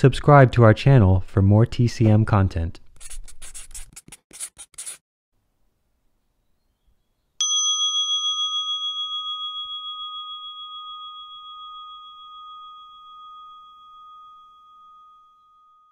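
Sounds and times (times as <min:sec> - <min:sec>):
struck bell chime: 0:07.4 - 0:15.9.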